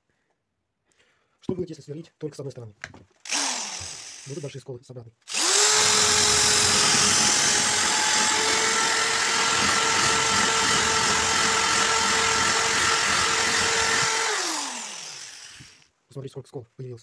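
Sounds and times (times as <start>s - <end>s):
power drill grinding through glass: 3.2s - 4.5s, 5.3s - 15.9s.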